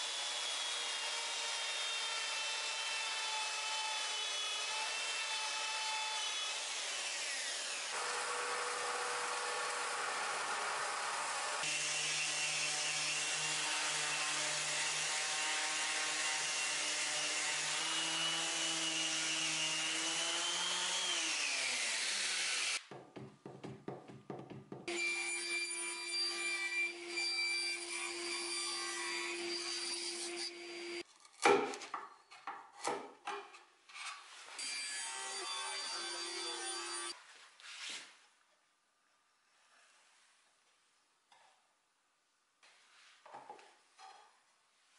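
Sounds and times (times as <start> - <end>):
knocks on wooden frame: 22.9 - 24.9.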